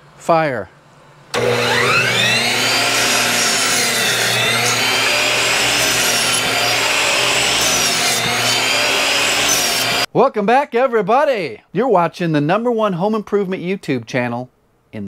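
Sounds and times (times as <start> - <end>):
miter saw cutting wood: 1.4 - 10.1.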